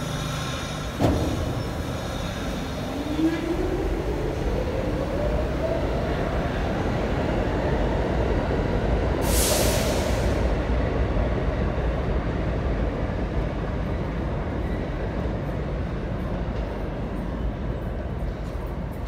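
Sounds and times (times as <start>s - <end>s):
train wheels rumbling on rail: 0.0s - 19.0s
air hiss: 9.2s - 10.5s.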